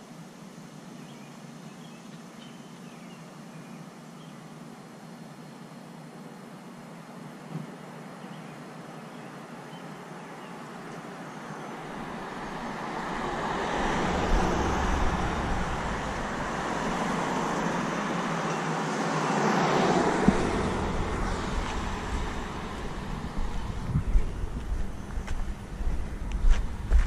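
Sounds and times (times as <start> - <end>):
vehicle approaching: 11.5 - 27.0
car driving past: 11.7 - 27.0.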